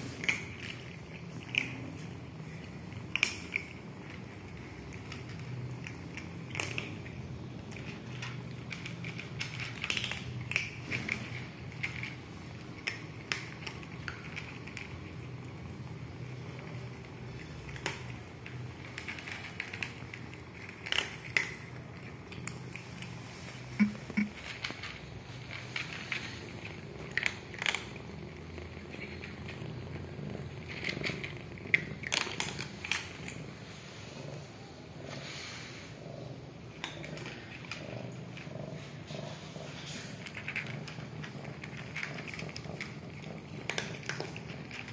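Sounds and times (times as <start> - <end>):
low steady hum: 0.0 - 35.0
cat purring: 0.0 - 44.9
kittens crunching dry kibble: 0.0 - 44.9.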